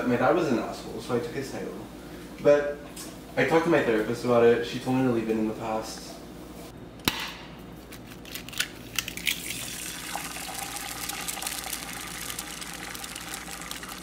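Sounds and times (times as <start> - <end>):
egg shell cracking: 7.9 - 14.0
egg sizzling in a frying pan: 9.2 - 14.0.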